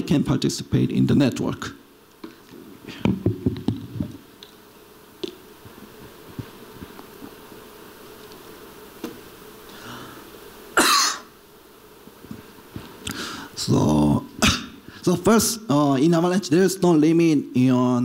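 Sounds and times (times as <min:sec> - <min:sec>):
man coughing: 0:10.8 - 0:11.3, 0:14.4 - 0:14.8.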